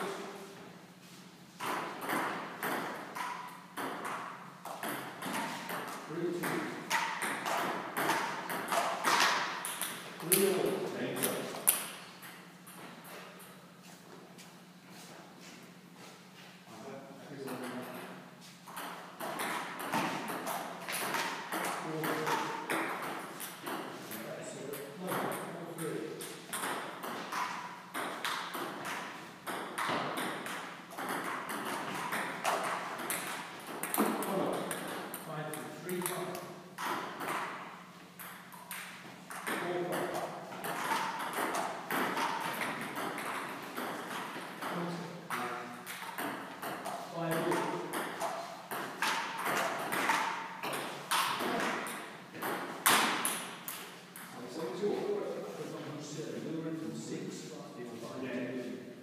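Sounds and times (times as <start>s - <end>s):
table tennis ball hits: 1.6s - 12.9s, 18.7s - 24.1s, 24.8s - 54.4s.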